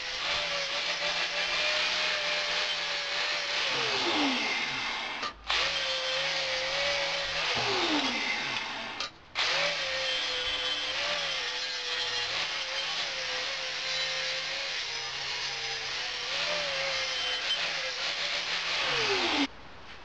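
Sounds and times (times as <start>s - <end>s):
power tool motor whining: 0.0s - 19.5s.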